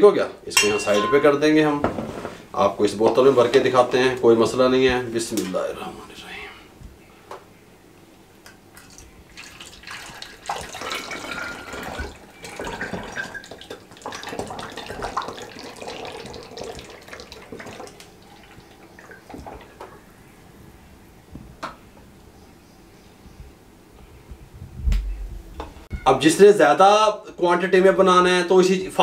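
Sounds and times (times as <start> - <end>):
liquid pouring into bottle: 8.8 - 19.7.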